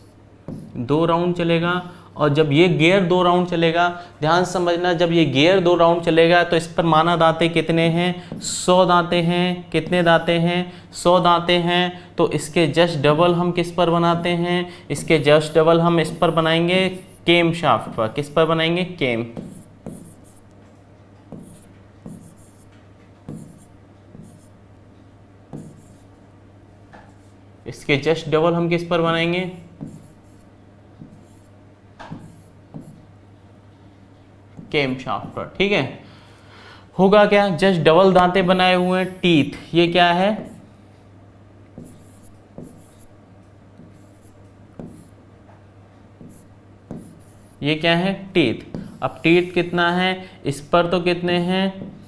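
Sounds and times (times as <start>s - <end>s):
marker pen writing on board: 0.5s - 0.8s, 9.8s - 10.3s, 19.3s - 20.4s, 21.3s - 24.6s, 25.5s - 26.1s, 29.8s - 33.0s, 41.8s - 43.1s, 43.8s - 45.2s, 46.2s - 47.6s, 48.6s - 49.3s.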